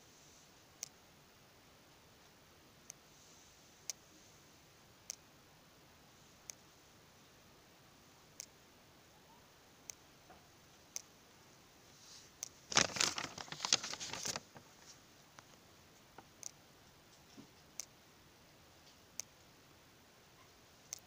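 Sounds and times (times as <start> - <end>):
faint sharp clicks: 10.9 - 11.1, 18.8 - 19.5
paper rustling: 12.7 - 15.0.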